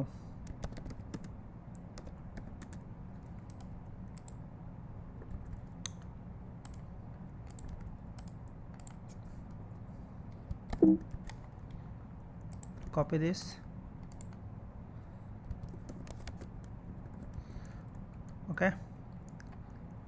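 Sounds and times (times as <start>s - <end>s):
steady low hum: 0.0s - 20.0s
computer keyboard typing: 0.4s - 4.4s, 5.2s - 6.8s, 7.4s - 9.0s, 12.4s - 13.0s, 14.0s - 14.4s, 15.5s - 18.4s.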